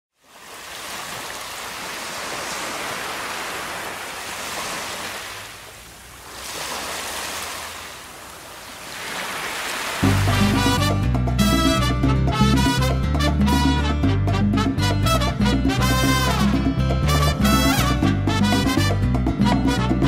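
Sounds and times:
surf washing over sand: 0.2s - 10.8s.

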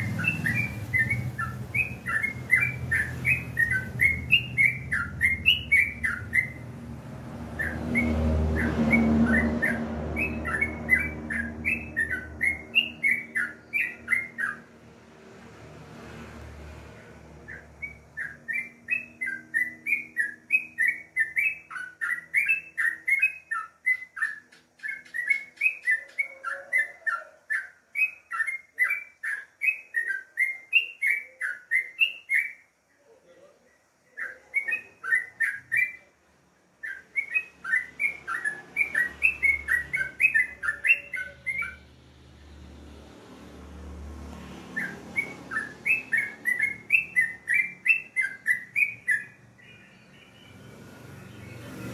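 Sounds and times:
bird singing bubbly chirps: 0.0s - 6.7s, 7.6s - 14.6s.

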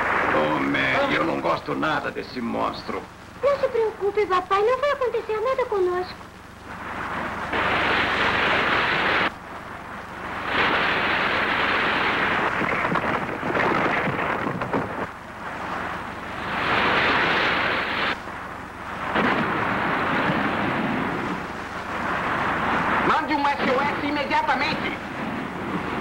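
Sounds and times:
rushing sea water: 0.0s - 1.6s, 6.8s - 26.0s
water splashing: 7.1s - 9.5s, 10.1s - 26.0s.

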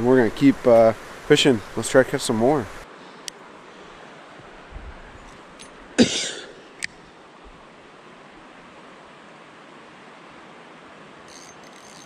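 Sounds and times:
creek rushing: 0.0s - 12.0s
sharp reel clicks: 11.3s - 12.0s.

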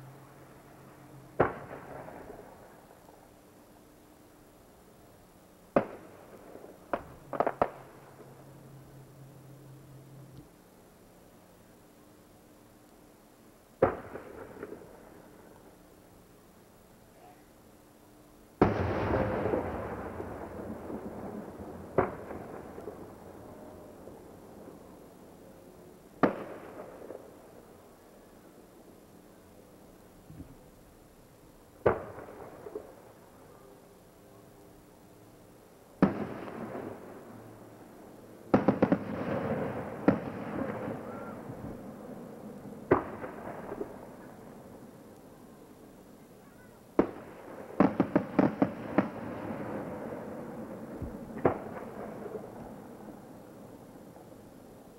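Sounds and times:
fireworks bangs: 1.2s - 3.2s, 5.7s - 8.4s, 13.8s - 15.3s, 18.6s - 24.9s, 26.2s - 27.7s, 31.8s - 33.2s, 36.0s - 37.5s, 38.5s - 44.6s, 47.0s - 53.0s.

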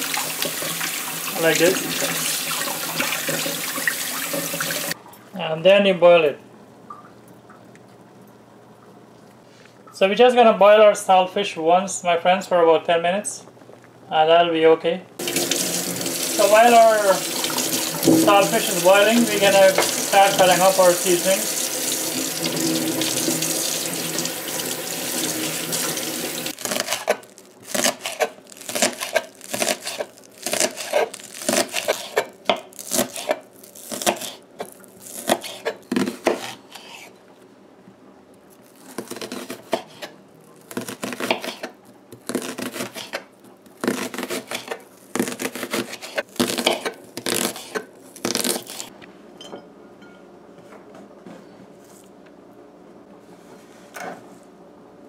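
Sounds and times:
knife chopping on wooden board: 35.2s - 36.6s, 39.0s - 40.1s, 40.7s - 43.2s.

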